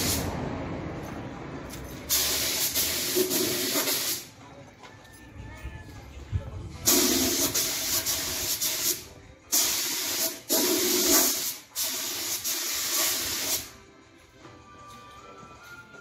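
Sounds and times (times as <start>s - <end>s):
spray gun hissing: 2.1s - 4.2s, 6.9s - 13.7s.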